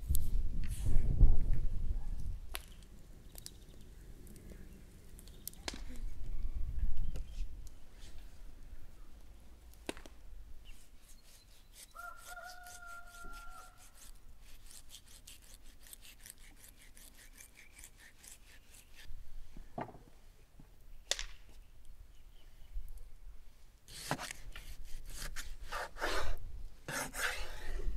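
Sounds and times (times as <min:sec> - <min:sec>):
knife cutting along bones: 0:11.3 - 0:19.1.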